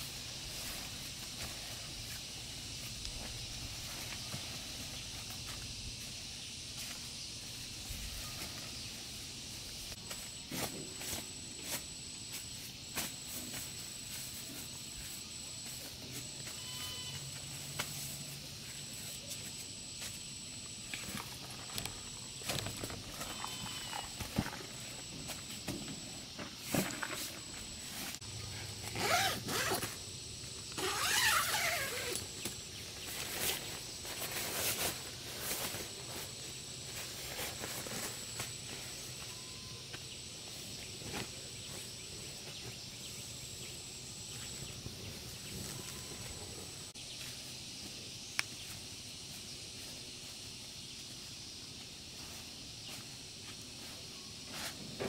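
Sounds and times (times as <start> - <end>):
high-pitched outdoor tone: 15.2 - 30.0
rustling and scraping handling noises: 30.8 - 39.3.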